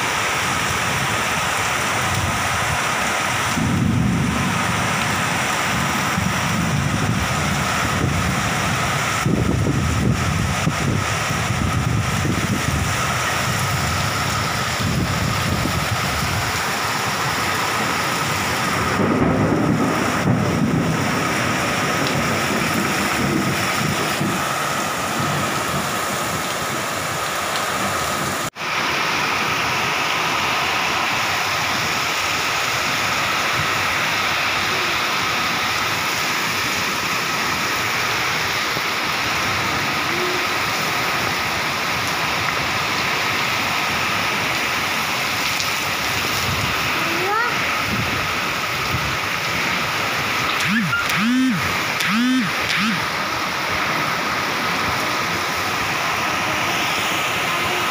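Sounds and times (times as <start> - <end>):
heavy rain pouring: 0.0 - 57.9
low thunder rumble: 3.5 - 26.4.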